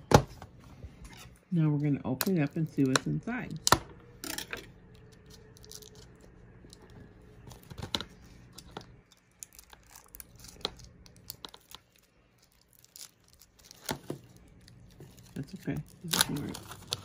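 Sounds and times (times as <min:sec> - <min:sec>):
shrink-wrap crinkling and tearing: 0:04.8 - 0:17.0
plastic wrap snapping: 0:04.9 - 0:17.0.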